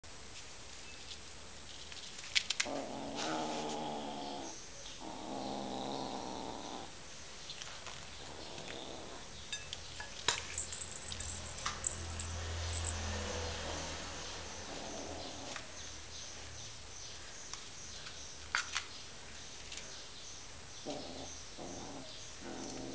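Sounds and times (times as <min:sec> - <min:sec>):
kitten growling: 0:02.6 - 0:06.9, 0:20.9 - 0:22.9.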